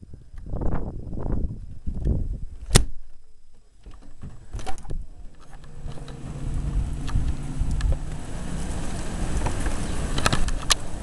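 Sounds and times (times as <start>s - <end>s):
wind buffeting microphone: 0.0s - 3.1s, 4.0s - 11.0s
low steady hum: 0.0s - 11.0s
sharp click: 2.0s - 3.0s.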